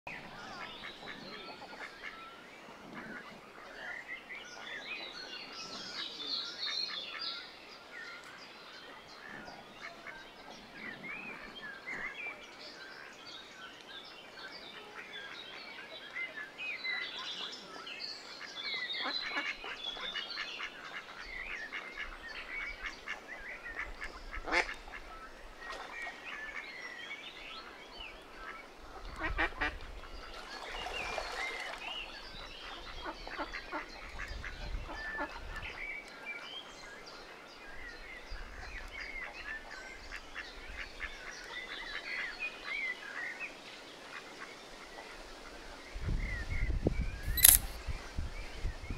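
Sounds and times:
ducks quacking: 18.4 - 25.1.

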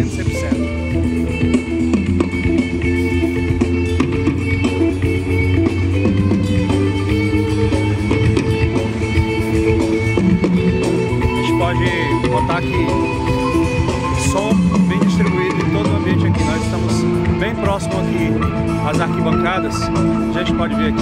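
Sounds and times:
music over loudspeakers: 0.0 - 21.0.

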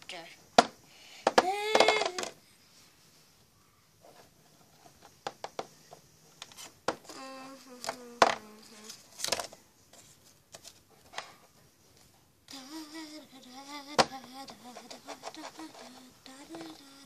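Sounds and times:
child humming: 1.4 - 2.4, 7.0 - 9.0, 12.5 - 17.0.

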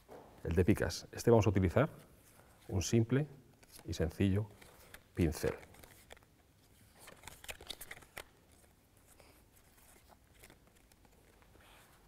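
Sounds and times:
playing cards clicking and snapping: 7.0 - 8.7.

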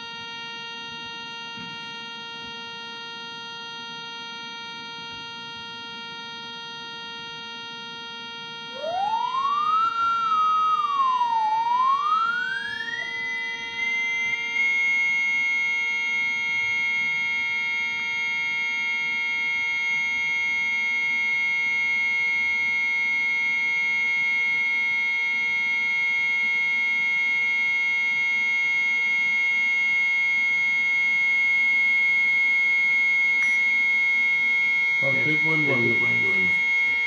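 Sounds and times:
high electronic tone: 8.6 - 14.7, 35.0 - 37.0.

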